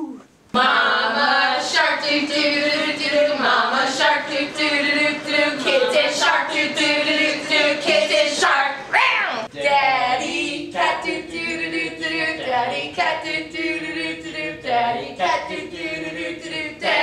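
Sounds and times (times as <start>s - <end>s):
person whooping: 0.0s - 0.3s
voices singing together: 0.5s - 17.0s.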